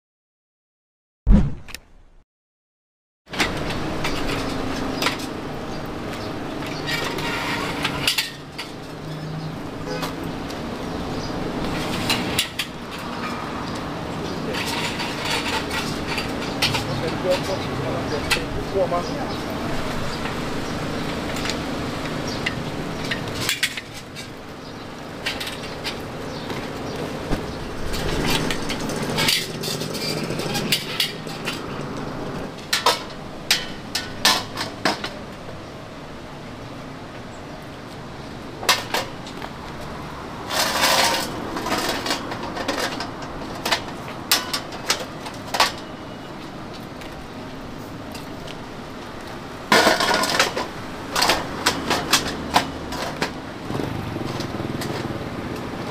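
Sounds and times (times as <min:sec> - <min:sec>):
metal utensils clinking and clattering: 0:14.3 - 0:18.5, 0:27.8 - 0:31.8, 0:40.5 - 0:46.0, 0:49.7 - 0:53.4.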